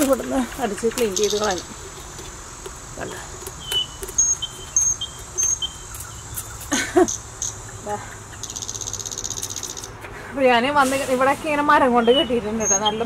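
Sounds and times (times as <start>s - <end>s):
high-pitched cricket trill: 8.4s - 10.0s.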